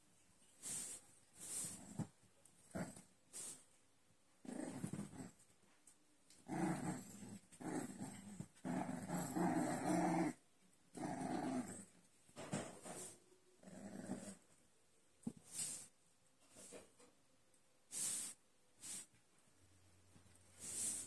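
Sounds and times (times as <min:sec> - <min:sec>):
puppies growling: 0:04.4 - 0:05.4, 0:06.4 - 0:12.0, 0:13.6 - 0:14.4.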